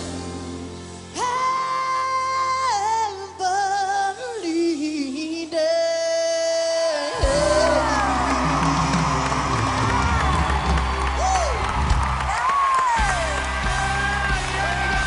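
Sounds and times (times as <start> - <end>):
crowd cheering: 6.9 - 15.0.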